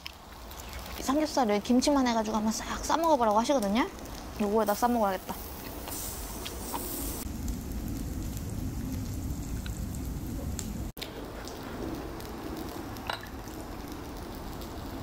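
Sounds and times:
meat sizzling on a griddle: 4.0s - 8.7s.

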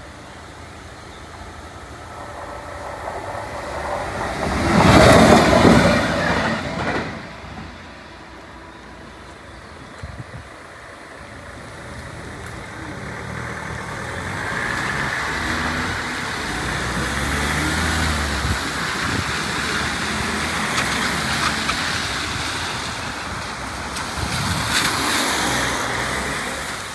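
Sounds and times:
tyres hissing on wet road: 0.0s - 26.9s
van engine passing: 10.2s - 26.9s.

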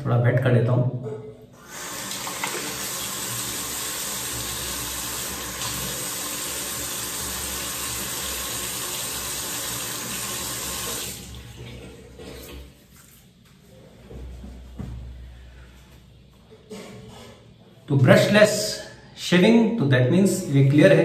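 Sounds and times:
tap water running into sink: 1.6s - 12.7s.

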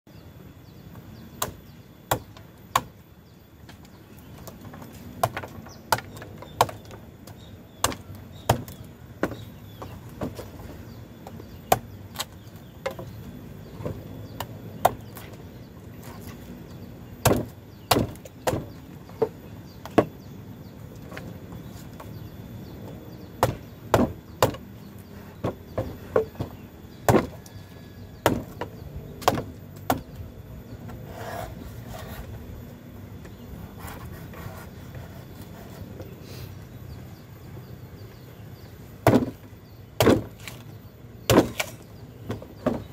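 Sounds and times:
machete chopping coconut: 1.4s - 3.0s, 5.2s - 7.0s, 7.8s - 9.4s, 17.2s - 18.7s, 23.4s - 24.6s, 25.8s - 27.6s, 28.2s - 30.1s, 39.0s - 39.4s, 40.0s - 40.6s, 41.3s - 42.8s.

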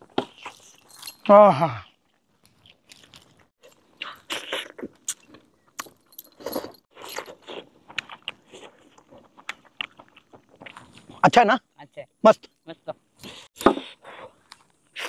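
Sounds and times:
chewing: 0.0s - 11.2s
people eating with hands: 0.0s - 11.2s.

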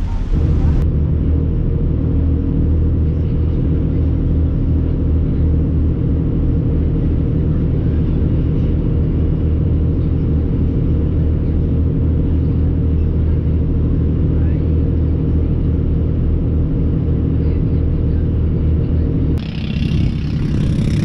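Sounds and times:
boat engine droning: 0.0s - 21.0s.

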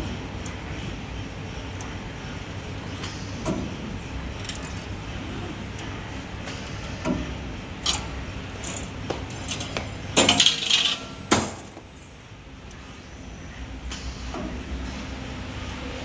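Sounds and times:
metallic clicks and clinks: 4.4s - 4.9s.

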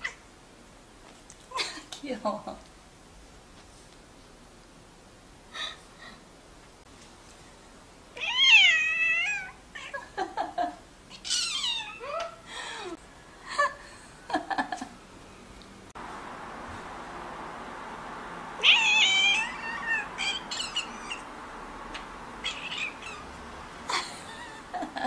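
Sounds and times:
cat chirping cries: 8.2s - 10.0s, 11.1s - 12.4s, 18.6s - 21.3s, 22.4s - 23.4s
cat meowing: 8.2s - 10.0s, 11.1s - 12.0s, 18.6s - 21.3s, 22.4s - 23.4s.

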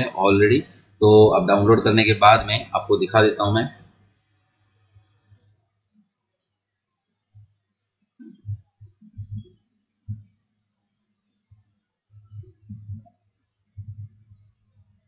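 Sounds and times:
computer mouse clicks: 6.3s - 6.6s, 7.8s - 9.5s, 10.1s - 11.0s
faint low thumps: 8.3s - 9.5s, 12.2s - 13.1s, 13.8s - 14.5s.

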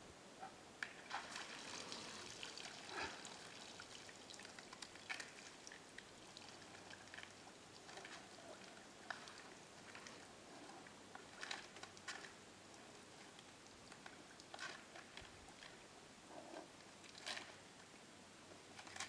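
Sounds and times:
water splashing and dripping: 1.0s - 8.2s.

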